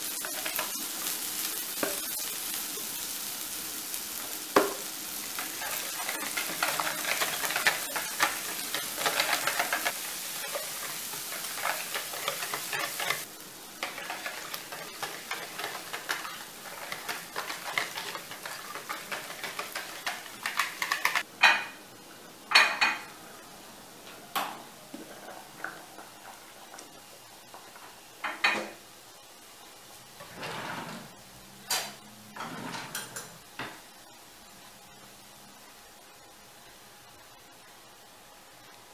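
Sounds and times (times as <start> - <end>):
leeks sizzling in a frying pan: 0.0 - 21.3
whisk beating eggs in a bowl: 5.4 - 21.2
utensils knocking and clacking: 5.4 - 21.3.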